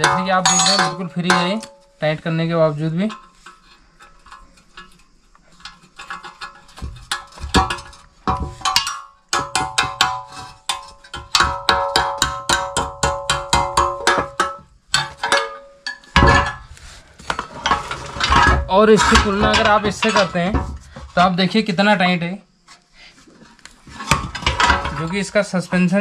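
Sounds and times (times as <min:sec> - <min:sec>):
metal parts clattering: 0:00.0 - 0:01.8, 0:13.8 - 0:16.7, 0:17.3 - 0:21.3, 0:24.0 - 0:25.4
spanners clinking on a nut: 0:00.0 - 0:01.9.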